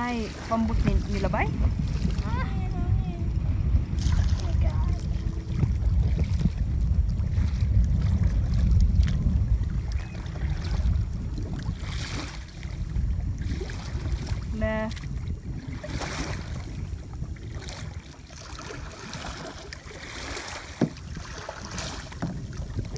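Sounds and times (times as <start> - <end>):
kayak paddle splashing water: 0.0 - 22.9
wind buffeting microphone: 0.0 - 22.9.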